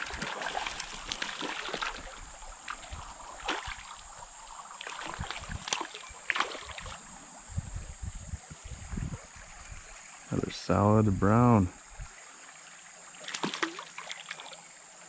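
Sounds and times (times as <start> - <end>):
fish splashing in water: 0.0 - 7.0, 13.2 - 14.7
creek rushing: 0.0 - 7.5.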